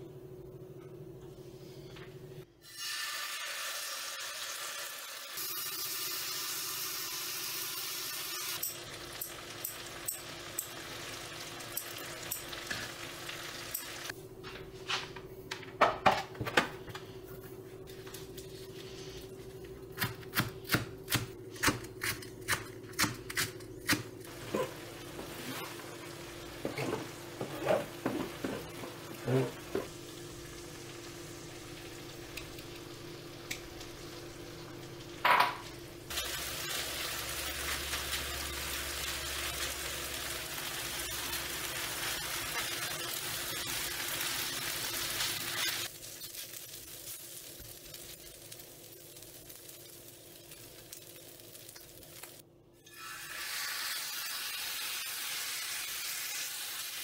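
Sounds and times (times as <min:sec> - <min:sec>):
food sizzling on griddle: 0:02.6 - 0:14.1, 0:24.3 - 0:57.0.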